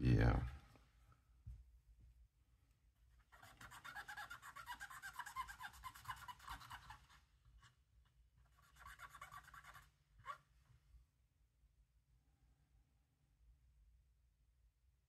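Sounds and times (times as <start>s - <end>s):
cotton swab scrubbing circuit board: 3.2s - 7.8s, 8.4s - 10.4s.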